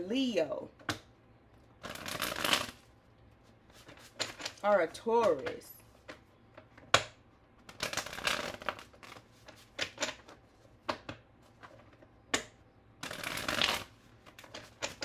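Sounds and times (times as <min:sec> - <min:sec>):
cards snapping: 0:01.8 - 0:02.8, 0:07.7 - 0:09.2, 0:12.4 - 0:13.9
cards rustling shuffle: 0:01.8 - 0:04.6, 0:07.6 - 0:10.8, 0:13.0 - 0:15.0.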